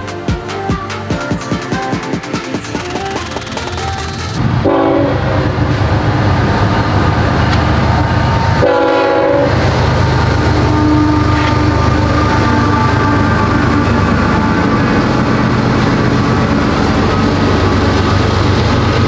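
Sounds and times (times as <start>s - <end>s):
background music: 0.0s - 4.5s
freight train rumbling past: 0.0s - 19.0s
locomotive air horn: 4.6s - 5.6s, 8.6s - 9.6s, 10.5s - 16.4s.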